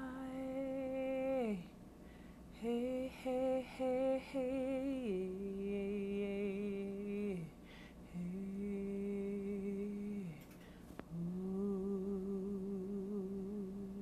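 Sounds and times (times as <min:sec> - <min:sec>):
person humming: 0:08.1 - 0:10.4, 0:11.1 - 0:14.0.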